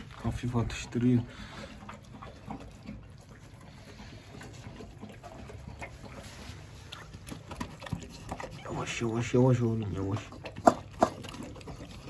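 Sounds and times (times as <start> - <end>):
dog chewing wet food: 0.0 - 12.0.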